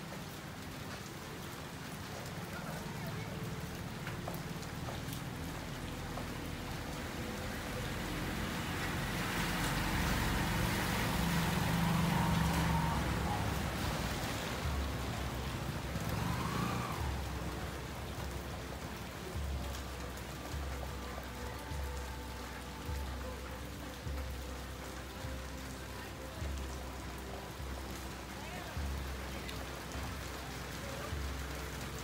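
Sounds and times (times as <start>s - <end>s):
steady rain on a street: 0.0s - 32.0s
vehicle engines passing: 0.5s - 22.0s.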